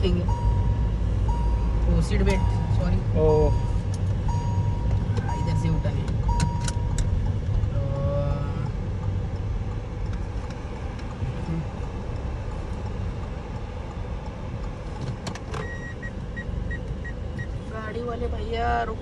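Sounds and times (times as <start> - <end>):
car road and engine rumble: 0.0 - 19.0
high beep repeating: 0.2 - 7.0, 15.6 - 17.5.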